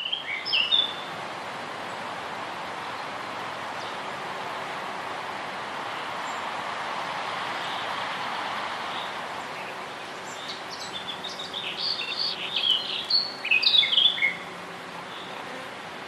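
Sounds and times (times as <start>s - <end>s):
bird chirps: 0.0s - 1.1s, 8.9s - 14.5s
steady rushing noise: 1.1s - 12.2s.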